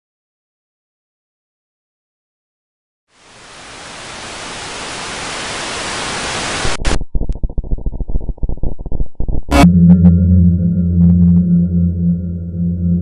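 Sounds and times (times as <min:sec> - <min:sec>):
static hiss: 0:03.1 - 0:07.0
muffled irregular crackle: 0:05.1 - 0:09.5.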